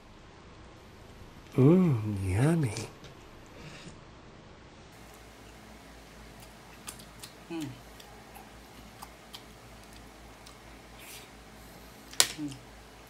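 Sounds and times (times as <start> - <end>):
chewing and finger-licking: 6.3 - 11.3
person humming with enjoyment: 7.5 - 7.9.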